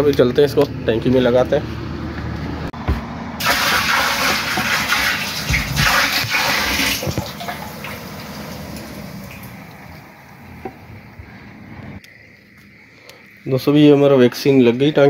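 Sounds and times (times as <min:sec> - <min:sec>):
water gushing into tank: 0:03.4 - 0:09.6
water sloshing: 0:03.4 - 0:10.2.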